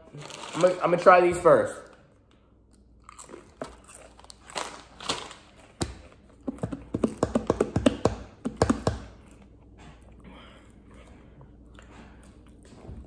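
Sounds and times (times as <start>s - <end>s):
chewing potato chip: 2.7s - 6.9s
hands drumming on tabletop: 6.5s - 9.1s.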